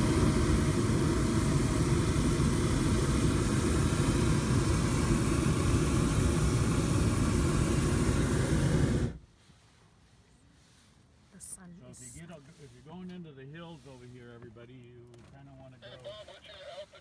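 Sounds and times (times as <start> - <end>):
propane burner blast: 0.0 - 9.2.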